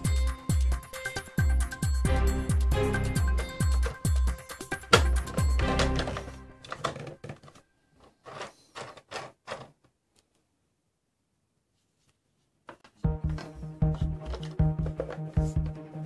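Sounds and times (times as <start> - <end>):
background music: 0.0 - 7.3, 13.0 - 16.0.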